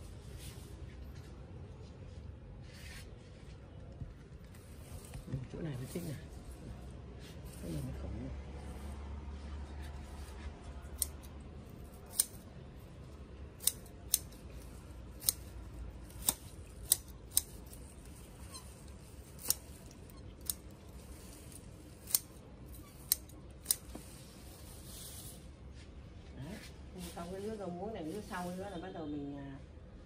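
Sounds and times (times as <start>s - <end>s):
scissors snipping stems: 10.8s - 12.5s, 13.5s - 18.0s, 19.2s - 24.2s.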